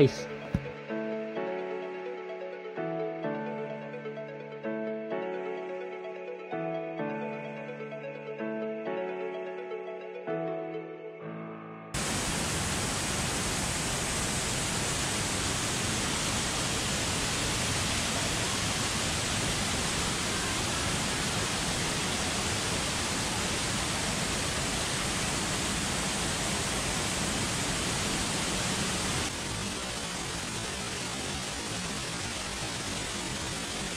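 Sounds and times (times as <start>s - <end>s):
waterfall rushing: 12.0s - 33.9s.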